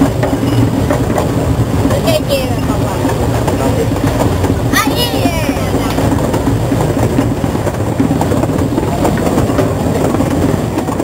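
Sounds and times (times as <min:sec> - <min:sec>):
play train rumbling and rattling: 0:00.0 - 0:11.0.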